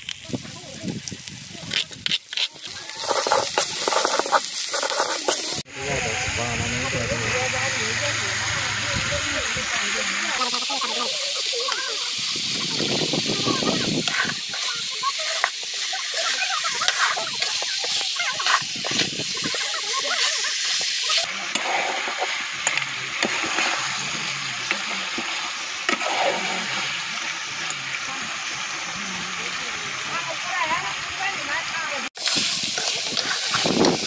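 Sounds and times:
metal spoon scraping a pan: 0:01.8 - 0:05.6, 0:10.4 - 0:23.6, 0:32.2 - 0:34.0
meat sizzling in a pan: 0:06.9 - 0:34.0.

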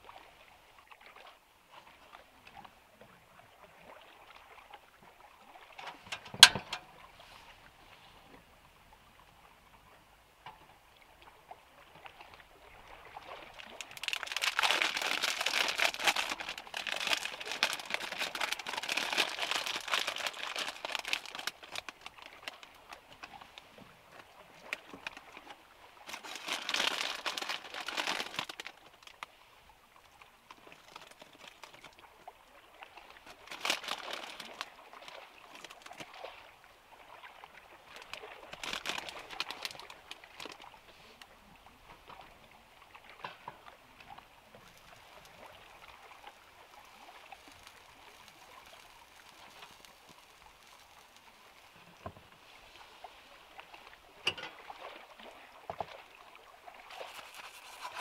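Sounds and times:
plastic bag crinkling: 0:13.9 - 0:22.6, 0:26.1 - 0:28.8, 0:33.3 - 0:34.6, 0:38.5 - 0:40.6, 0:56.9 - 0:58.0.

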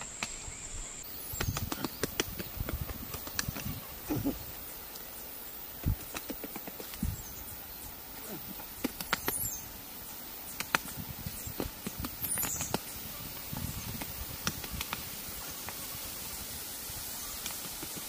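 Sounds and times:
faint outdoor hiss: 0:00.0 - 0:18.0.

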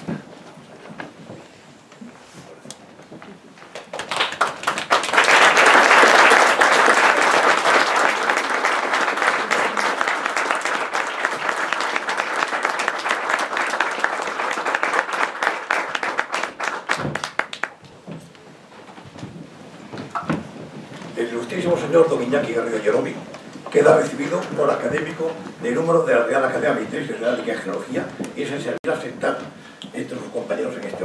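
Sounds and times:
audience applauding: 0:03.6 - 0:17.9.

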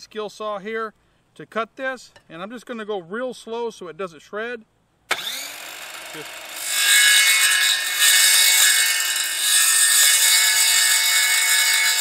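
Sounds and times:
saw grating through rod: 0:05.2 - 0:12.0.

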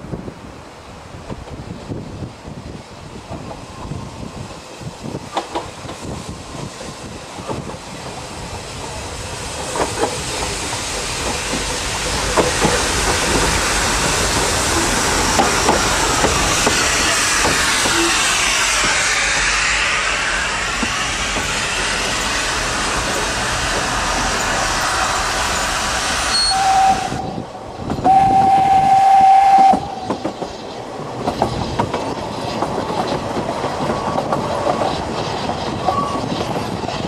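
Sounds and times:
steam train wheels on rails: 0:00.0 - 0:37.0
loud hiss of steam: 0:00.6 - 0:37.0.

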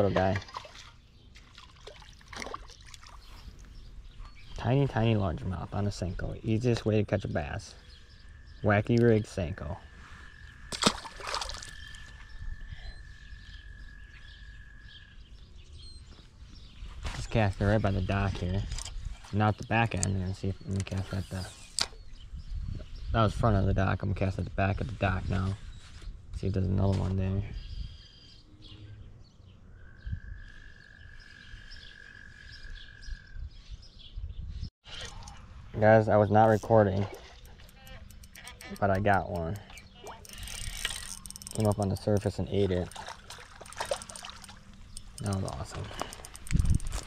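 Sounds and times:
water splashing and dripping: 0:00.2 - 0:03.2, 0:10.7 - 0:12.1, 0:36.8 - 0:47.0
faint bird chirps: 0:11.5 - 0:18.4, 0:36.1 - 0:46.8
wind rumble on microphone: 0:11.6 - 0:28.0, 0:32.5 - 0:34.7, 0:44.9 - 0:47.0.

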